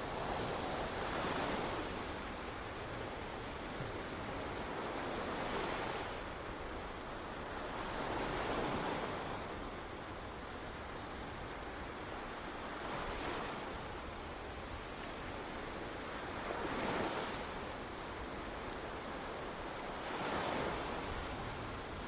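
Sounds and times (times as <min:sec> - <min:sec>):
ocean waves breaking on beach: 0:00.0 - 0:04.2.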